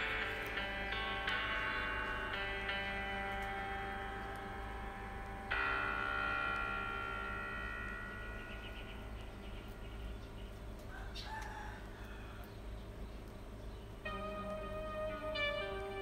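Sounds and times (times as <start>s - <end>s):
bell-like chord: 0.0s - 10.8s, 14.0s - 16.0s.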